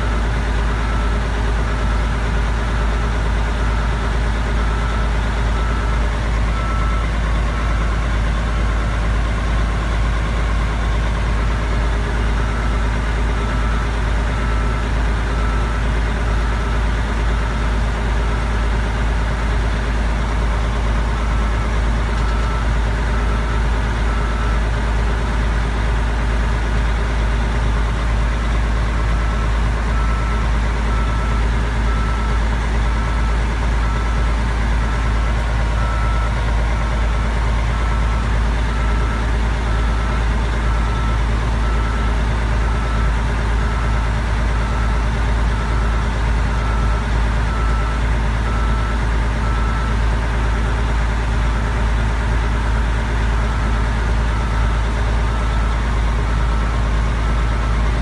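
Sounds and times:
diesel truck engine idling: 0:00.0 - 0:58.0
reversing beeper: 0:04.4 - 0:17.7, 0:20.6 - 0:25.8, 0:29.0 - 0:51.0, 0:51.6 - 0:58.0.

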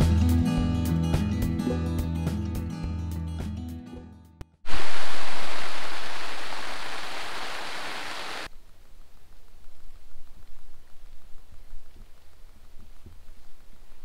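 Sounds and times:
background music: 0:00.0 - 0:04.3
heavy rain on tent: 0:04.7 - 0:14.0.

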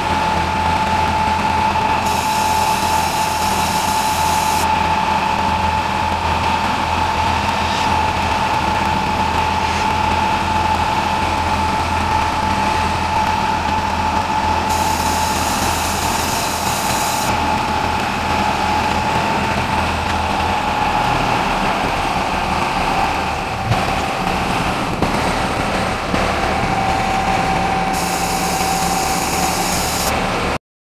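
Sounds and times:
diesel engine running: 0:00.0 - 0:30.6
high whine: 0:00.0 - 0:30.6
hiss: 0:02.0 - 0:04.7, 0:14.7 - 0:17.3, 0:27.9 - 0:30.1.

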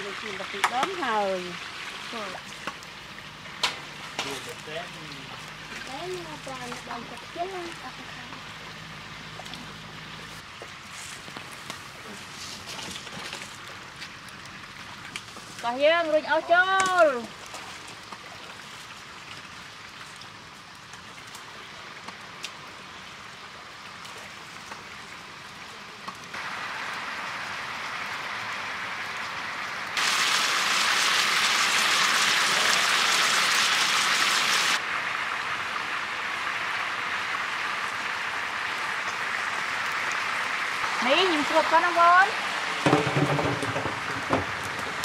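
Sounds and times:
water boiling hard: 0:00.0 - 0:45.0
wood fire crackling: 0:00.0 - 0:45.0.

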